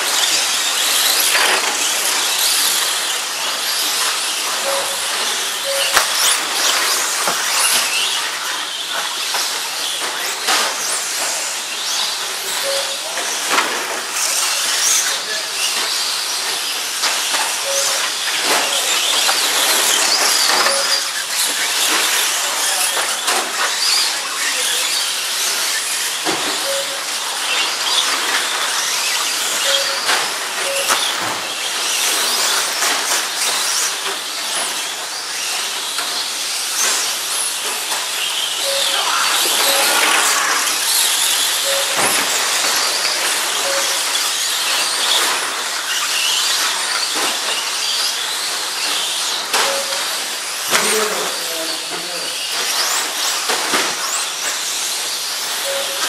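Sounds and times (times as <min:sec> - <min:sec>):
rc trucks whining on dirt: 0:00.0 - 0:56.0
short beeps: 0:04.5 - 0:06.8, 0:12.6 - 0:13.3, 0:17.6 - 0:18.9, 0:20.5 - 0:21.2, 0:26.6 - 0:27.2, 0:29.6 - 0:31.4, 0:38.6 - 0:40.8, 0:41.6 - 0:44.4, 0:49.6 - 0:50.3, 0:55.6 - 0:56.0.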